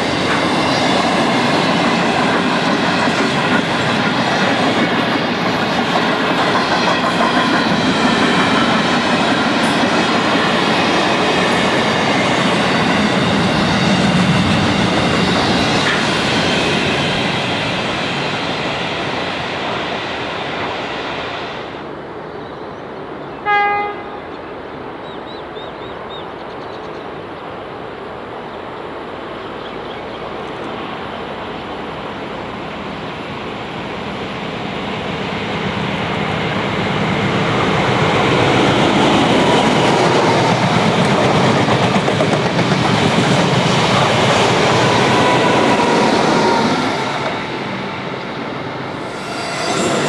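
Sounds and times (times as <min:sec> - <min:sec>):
freight train wagons clattering: 0:00.0 - 0:16.1
train horn blast: 0:23.4 - 0:24.3.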